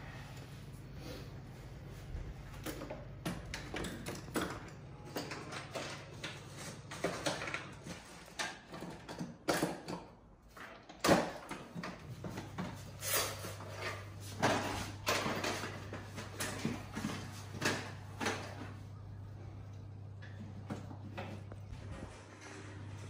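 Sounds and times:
low steady hum: 11.8s - 23.0s.

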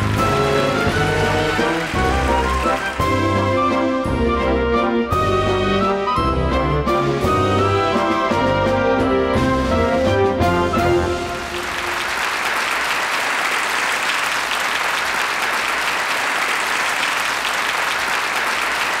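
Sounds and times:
audience applause: 0.0s - 3.9s, 10.9s - 19.0s
band music: 0.0s - 12.1s.

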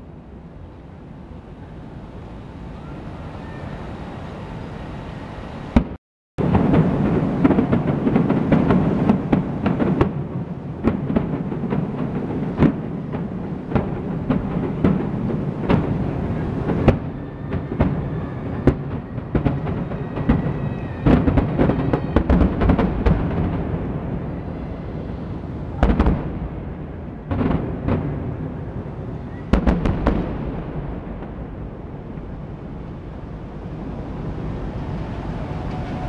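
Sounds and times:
fireworks bursting: 5.7s - 36.0s.

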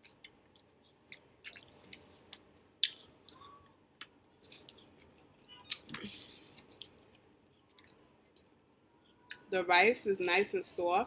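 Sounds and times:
person chewing: 0.0s - 8.5s.

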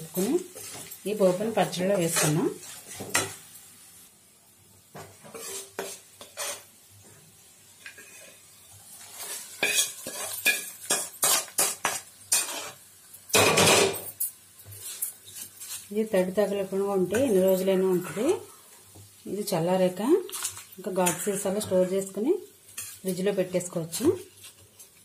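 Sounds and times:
metal spoon clinking and scraping: 9.2s - 12.8s.

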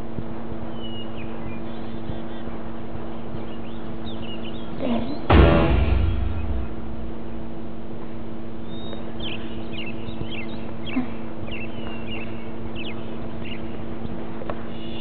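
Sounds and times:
videotape hum and hiss: 0.0s - 5.2s
birds chirping: 0.7s - 5.3s, 8.7s - 13.8s.

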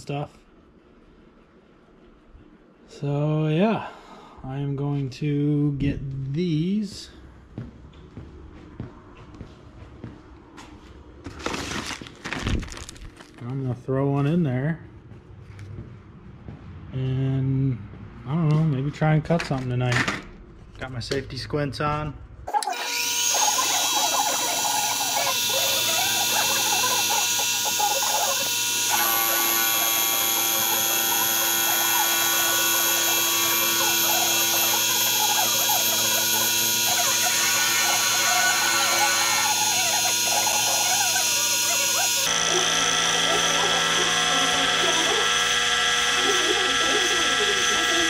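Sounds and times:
lathe motor whining: 22.5s - 48.0s
scratchy metal cutting noise: 22.5s - 48.0s.

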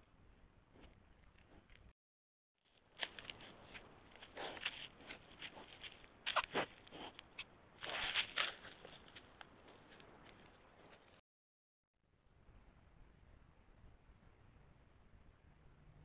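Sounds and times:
animal rustling in dry leaves: 2.7s - 7.2s, 7.8s - 11.2s
scuffs: 3.0s - 11.2s.

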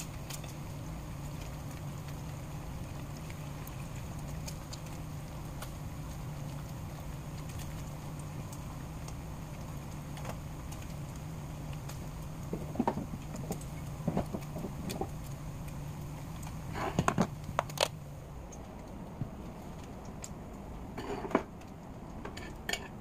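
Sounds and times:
bacon sizzling in a skillet: 0.0s - 18.0s
low hum: 0.0s - 23.0s
sharp pops and clicks: 9.8s - 20.7s.

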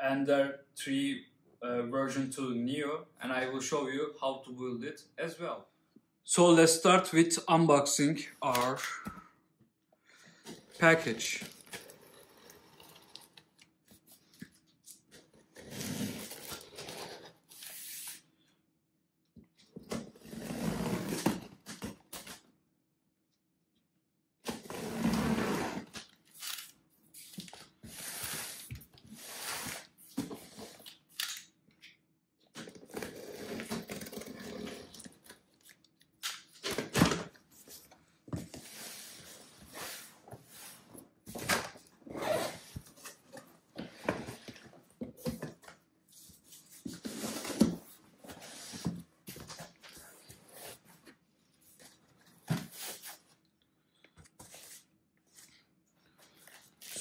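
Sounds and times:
packing tape tearing: 30.8s - 31.5s.

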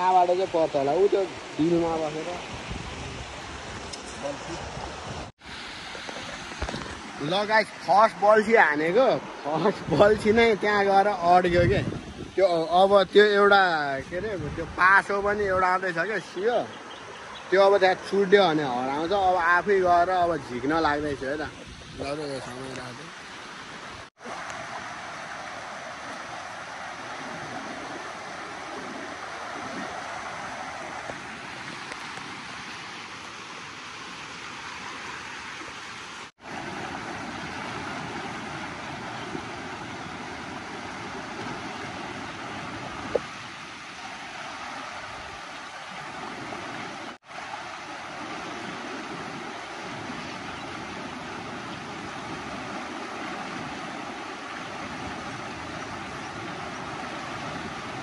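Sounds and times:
river rapids rushing: 0.0s - 11.6s, 17.5s - 58.0s.

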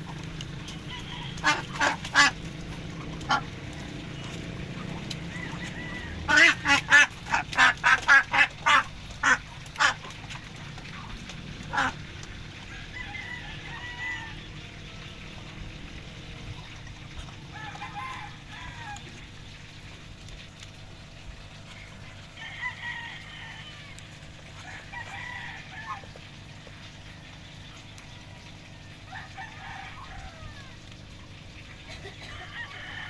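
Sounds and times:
fowl calling: 0.6s - 3.5s, 4.8s - 10.1s, 11.6s - 12.0s.

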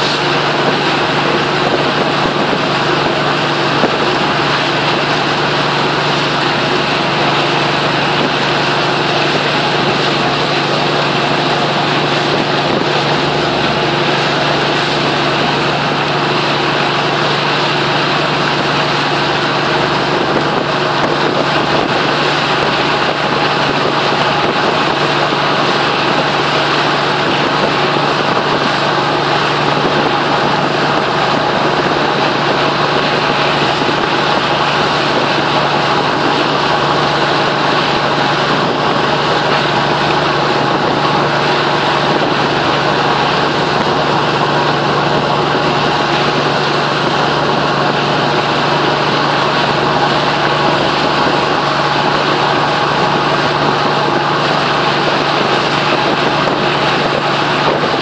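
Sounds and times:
boat engine humming: 0.0s - 58.0s
water rushing: 0.0s - 58.0s.

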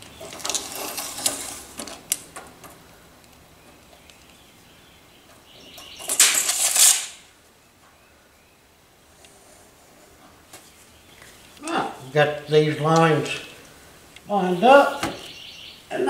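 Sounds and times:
tape measure blade retracting: 0.2s - 2.2s, 6.0s - 7.3s.

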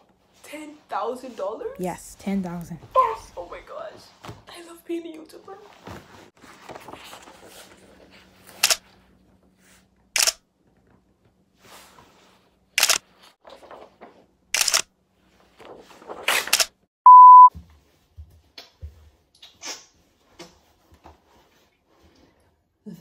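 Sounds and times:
camera shutter clicks: 8.6s - 8.8s, 10.2s - 10.4s, 12.8s - 13.0s, 14.6s - 14.8s
loud steady beep tone: 17.1s - 17.5s.

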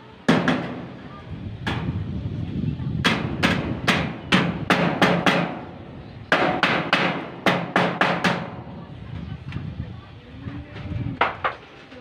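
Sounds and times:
hammer striking steel: 0.3s - 0.9s, 3.0s - 5.7s, 6.3s - 8.6s.

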